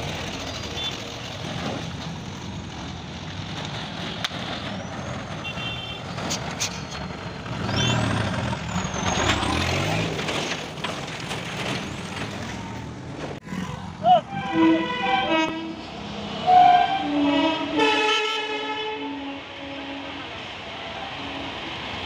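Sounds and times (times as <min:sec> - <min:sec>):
truck engine running: 0:00.0 - 0:05.3
motorbikes: 0:00.0 - 0:16.6
road traffic: 0:00.0 - 0:22.0.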